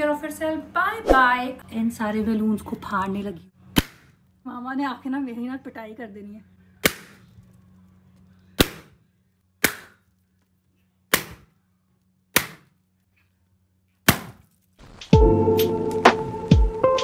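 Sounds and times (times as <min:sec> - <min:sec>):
balloons popping: 0:08.6 - 0:09.0, 0:14.0 - 0:15.2
music: 0:14.8 - 0:17.0.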